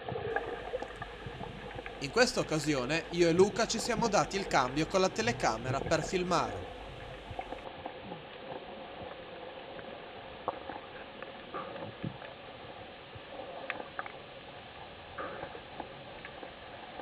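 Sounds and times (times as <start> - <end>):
underwater clicks and crackles: 0.0 - 17.0
faint steady hum: 0.3 - 7.7.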